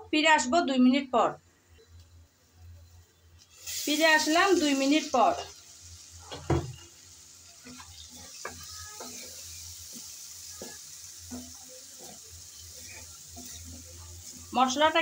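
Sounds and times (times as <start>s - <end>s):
food sizzling in a pan: 2.0s - 15.0s
spatula stirring and scraping: 6.2s - 15.0s.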